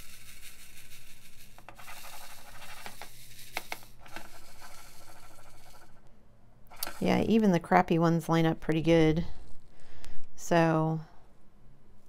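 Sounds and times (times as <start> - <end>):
plastic beads rattling in tray: 0.0 - 6.0.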